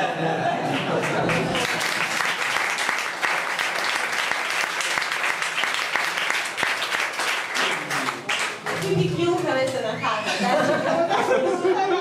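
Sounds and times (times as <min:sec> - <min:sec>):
audience applauding: 0:00.6 - 0:09.1.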